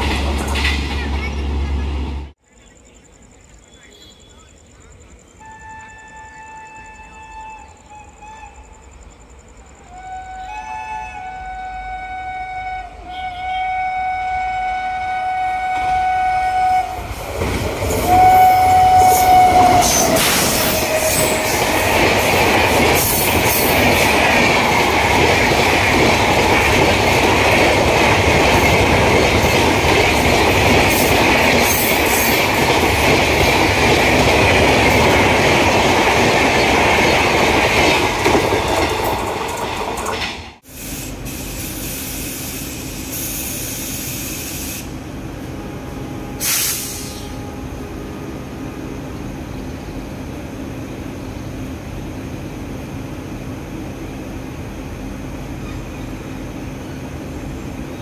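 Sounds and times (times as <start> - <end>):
train rumbling past: 0.0 - 58.0
locomotive horn blasts: 5.4 - 8.7, 9.9 - 17.1, 18.0 - 21.8, 45.4 - 48.5.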